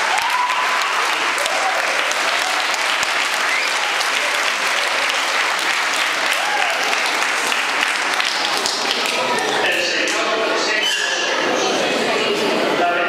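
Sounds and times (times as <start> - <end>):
audience applauding: 0.0 - 9.6
voices among clapping: 0.0 - 10.4.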